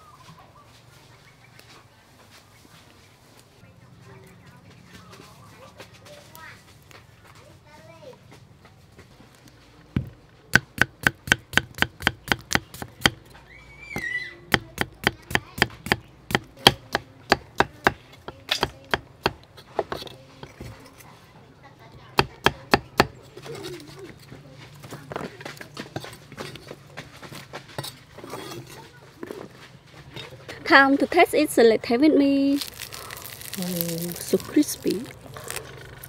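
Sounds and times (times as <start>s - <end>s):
cleaver chopping on wooden block: 10.0s - 13.2s, 14.5s - 19.5s, 22.2s - 23.2s.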